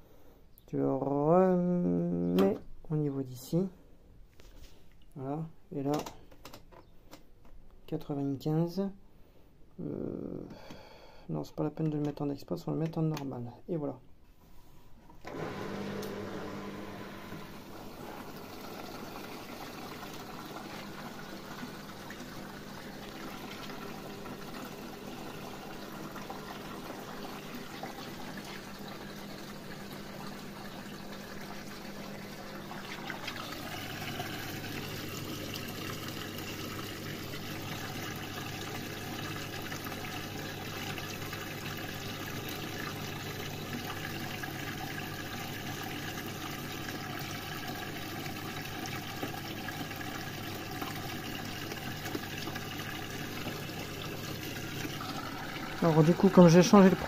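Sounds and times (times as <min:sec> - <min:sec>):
water running in washing machine: 0:15.3 - 0:57.0.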